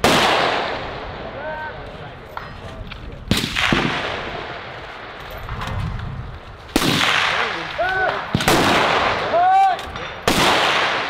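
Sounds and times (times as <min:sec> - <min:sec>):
rifle shots echoing: 0:00.0 - 0:01.3, 0:03.3 - 0:05.2, 0:06.7 - 0:11.0.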